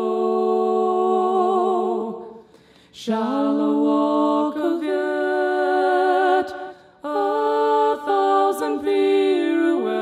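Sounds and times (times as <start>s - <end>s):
woman singing a cappella with reverb: 0.0s - 10.0s.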